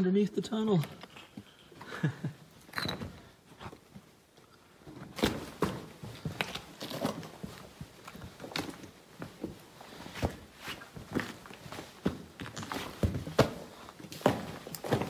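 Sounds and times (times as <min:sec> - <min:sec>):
footsteps on icy rocks: 0:05.0 - 0:15.0.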